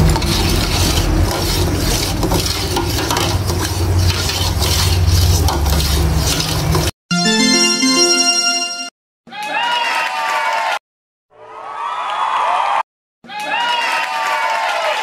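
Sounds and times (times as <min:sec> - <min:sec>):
utensil stirring in a metal pot: 0:00.0 - 0:06.9.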